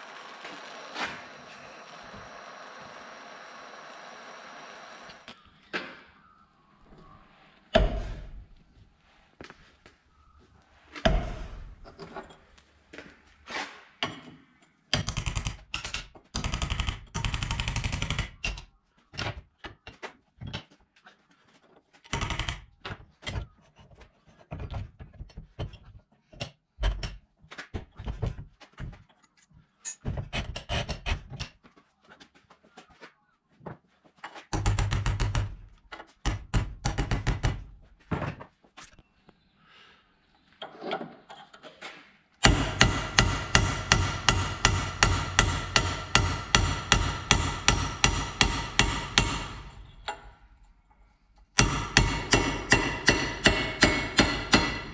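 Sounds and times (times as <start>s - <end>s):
hammer striking a metal punch: 42.4s - 50.2s, 51.6s - 54.9s.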